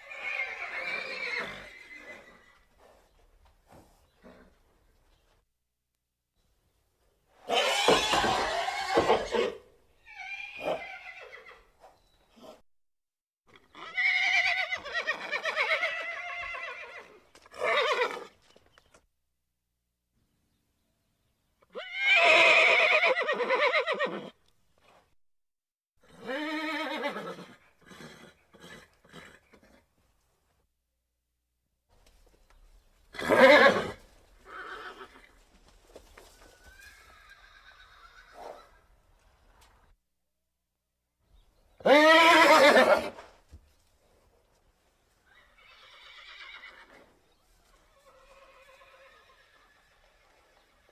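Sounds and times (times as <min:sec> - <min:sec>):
horse whinnying: 0:00.0 - 0:02.7, 0:07.4 - 0:11.7, 0:13.5 - 0:18.4, 0:21.6 - 0:24.4, 0:26.0 - 0:29.8, 0:33.1 - 0:35.4, 0:36.5 - 0:39.0, 0:41.8 - 0:43.3, 0:45.3 - 0:47.1, 0:47.8 - 0:50.9.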